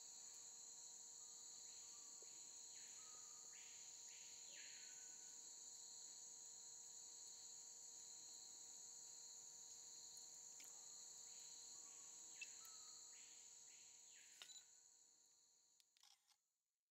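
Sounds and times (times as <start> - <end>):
insects trilling: 9.2 - 14.4.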